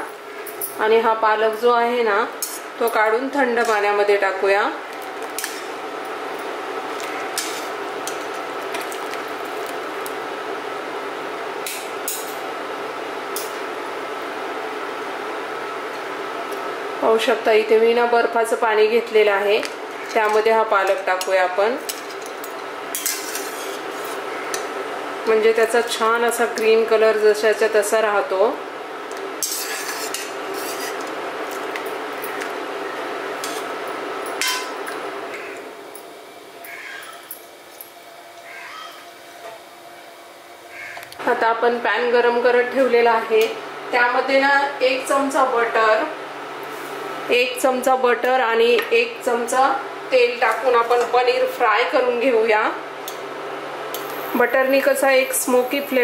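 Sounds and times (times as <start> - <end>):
steady background hum: 0.0 - 56.0
metal utensils clinking on pan: 21.9 - 23.8
metal spoon scraping pot and bowl: 22.9 - 24.2, 29.4 - 31.1.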